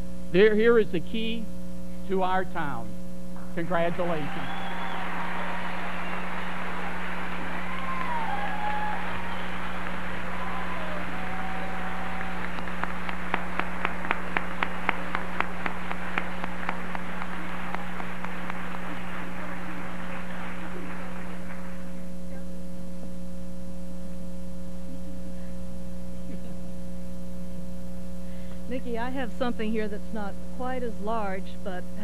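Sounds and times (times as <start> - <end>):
electrical hum: 0.0 - 32.0
audience applauding: 3.6 - 22.4.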